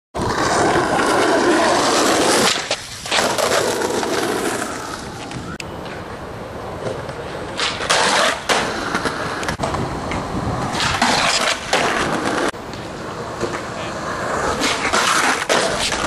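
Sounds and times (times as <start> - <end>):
skateboard clacks: 0.2 - 16.0
skateboard grinding on concrete: 0.2 - 16.0
skateboard wheels rolling: 0.2 - 16.0.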